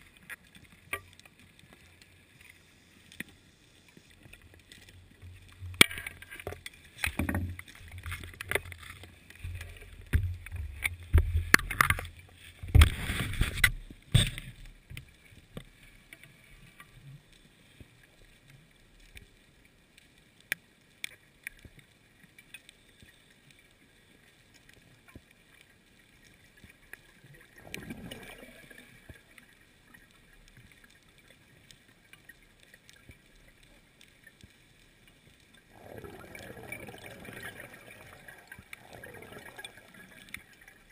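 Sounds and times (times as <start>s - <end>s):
faint clicks: 0.0s - 40.9s
quiet hiss: 0.0s - 40.9s
water rushing: 26.8s - 30.1s, 35.6s - 40.9s.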